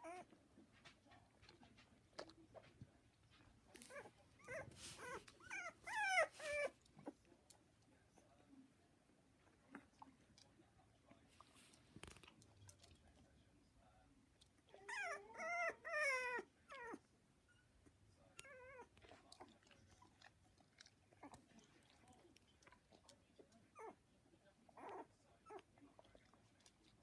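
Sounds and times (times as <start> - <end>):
dog whining: 0.0 - 0.3, 3.9 - 6.8, 14.8 - 17.0.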